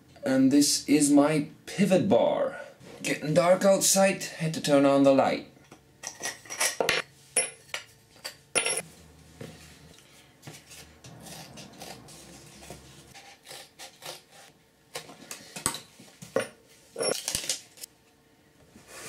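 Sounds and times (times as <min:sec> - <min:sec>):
metallic clinks and knocks: 0:08.3 - 0:08.8.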